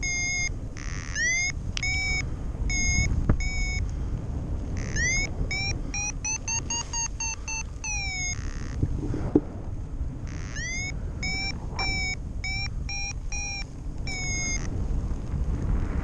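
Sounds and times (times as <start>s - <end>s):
variometer short electronic beeps: 0.0s - 3.8s, 4.8s - 8.8s, 10.2s - 14.7s
wind rushing over microphone: 0.0s - 16.0s.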